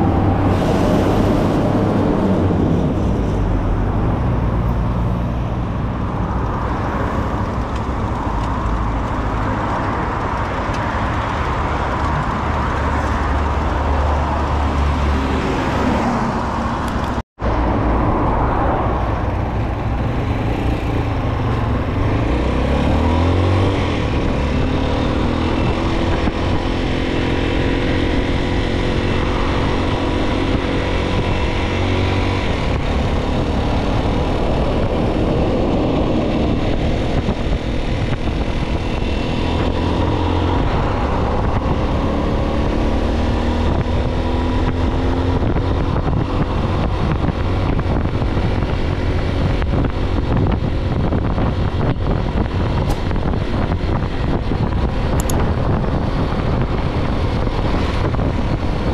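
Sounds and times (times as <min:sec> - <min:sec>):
motorcycle engine accelerating: 0:19.0 - 0:58.9.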